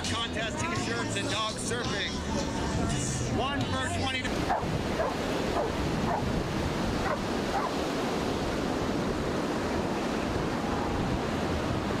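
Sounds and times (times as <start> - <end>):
ocean surf breaking: 3.3 - 12.0.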